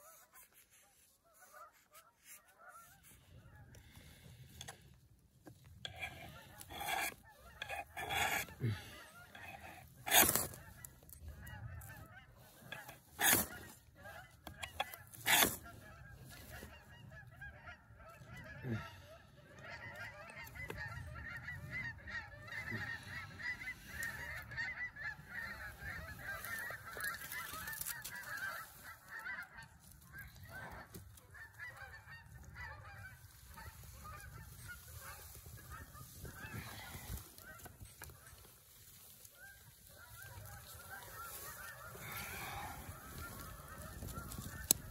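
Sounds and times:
geese honking: 0.0 - 44.9
ferro rod scraping: 5.5 - 16.8, 25.3 - 31.9.

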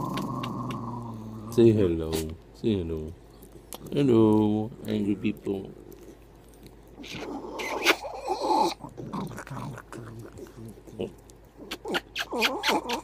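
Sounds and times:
small dog growling: 0.0 - 1.8, 5.7 - 13.0.

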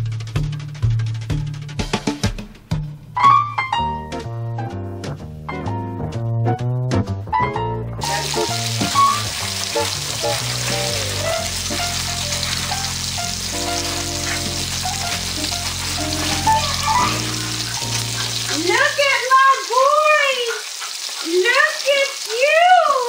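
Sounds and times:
music: 0.0 - 18.8
meat sizzling in oil: 8.0 - 23.0.

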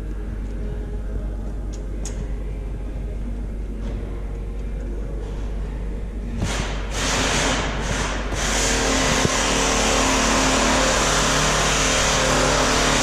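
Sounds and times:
power tool motor humming and hissing: 6.9 - 13.0.

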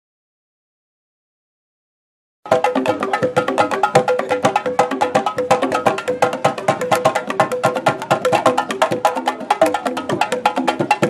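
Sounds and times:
pitched drum notes: 2.5 - 11.0.

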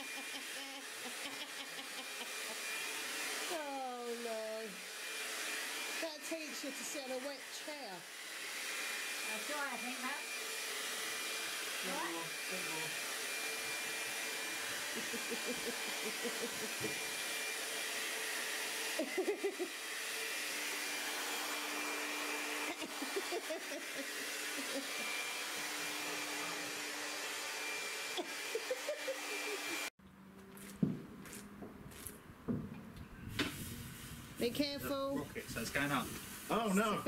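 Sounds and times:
people laughing: 0.0 - 2.6, 14.9 - 16.8, 19.0 - 19.7, 22.8 - 25.0, 28.2 - 29.8
hair dryer running: 0.0 - 29.9.

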